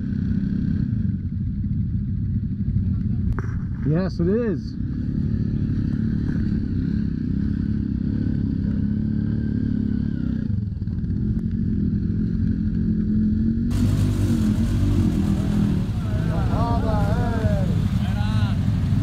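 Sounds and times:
off-road vehicle engines: 0:00.0 - 0:19.0
clatter: 0:02.8 - 0:03.9.

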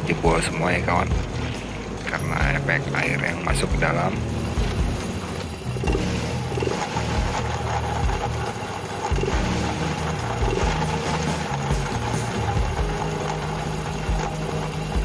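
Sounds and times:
drive belt and pulleys spinning: 0:00.0 - 0:15.0
scooter engine running: 0:03.7 - 0:15.0.

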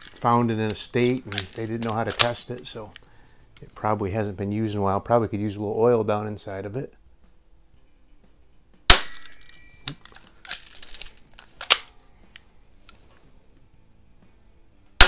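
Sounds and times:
bb pistol shot: 0:08.9 - 0:09.5
pistol cocking clicks: 0:08.9 - 0:12.4.

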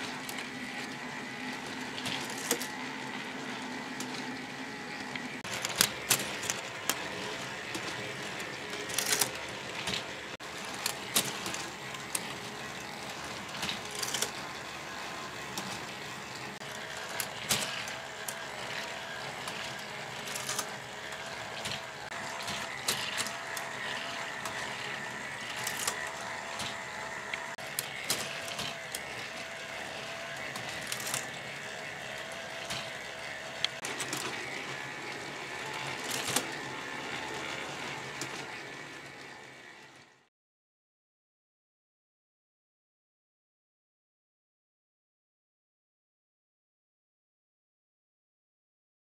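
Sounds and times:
plastic gears whirring: 0:00.0 - 0:40.3
plastic clicks and clacks: 0:17.1 - 0:24.7.

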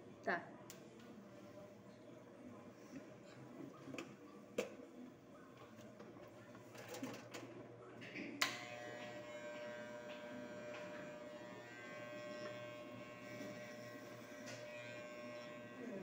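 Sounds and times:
hair clippers buzzing: 0:08.4 - 0:16.0.

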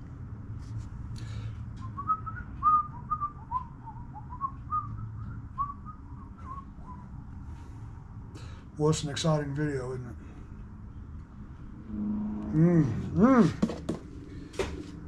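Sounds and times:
low steady hum: 0:00.0 - 0:15.0
man whistling a tune: 0:01.8 - 0:07.1.

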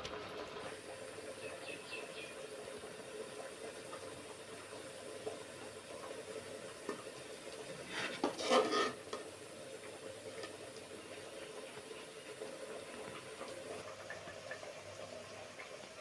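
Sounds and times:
metal spoon scraping in bowl: 0:07.9 - 0:09.0.

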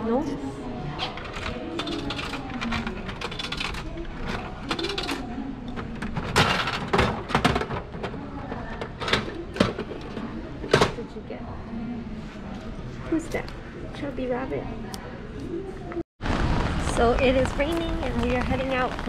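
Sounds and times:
vending machine crank clicking: 0:01.2 - 0:07.5.

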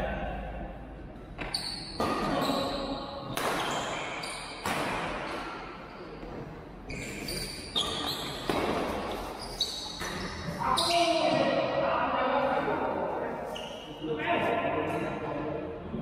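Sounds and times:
racket striking shuttlecock: 0:03.3 - 0:05.6.

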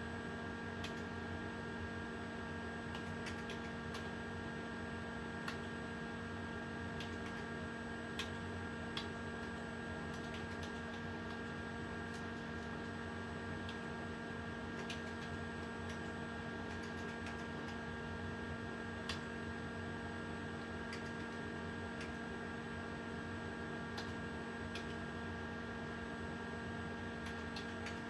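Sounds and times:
steady electrical hum: 0:00.0 - 0:28.0
computer keyboard clicks: 0:00.8 - 0:01.1, 0:02.9 - 0:04.1, 0:05.4 - 0:05.7, 0:07.0 - 0:07.5, 0:08.2 - 0:13.0, 0:14.7 - 0:17.8, 0:19.0 - 0:19.3, 0:20.9 - 0:21.4, 0:24.0 - 0:25.0, 0:27.2 - 0:28.0.

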